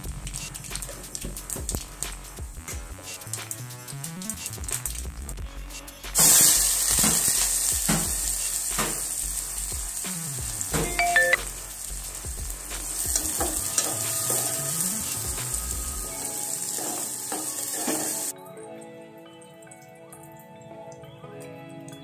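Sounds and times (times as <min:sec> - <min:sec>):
vegetables sizzling in hot oil: 0:06.2 - 0:18.3.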